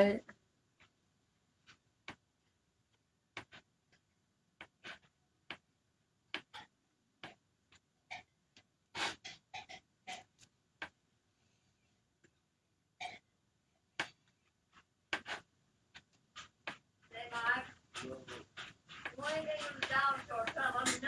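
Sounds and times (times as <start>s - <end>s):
squeegee scraping paste: 3.3s - 5.7s, 8.9s - 10.3s, 14.0s - 21.0s.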